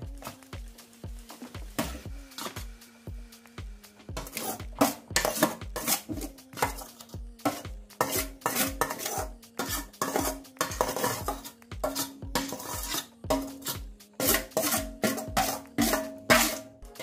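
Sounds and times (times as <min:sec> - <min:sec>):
background music with beat: 0:00.0 - 0:17.0
metal spoon scraping steel bowl: 0:04.1 - 0:17.0.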